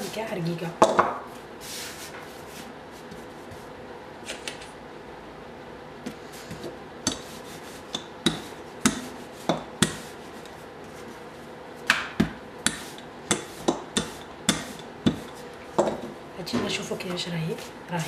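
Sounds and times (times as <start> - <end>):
rolling pin knocking on countertop: 0.8 - 1.2, 11.9 - 16.8.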